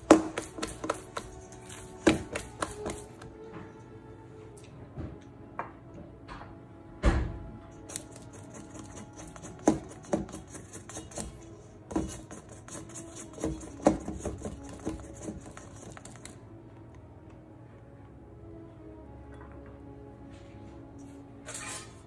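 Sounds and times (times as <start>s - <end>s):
plastic scraper on metal bowl: 0.0s - 3.0s, 7.9s - 16.3s.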